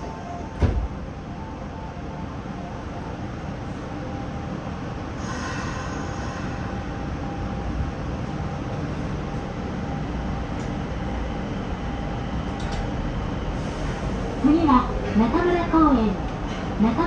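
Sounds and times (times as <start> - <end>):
train wheels rumbling on rail: 4.7 - 17.0.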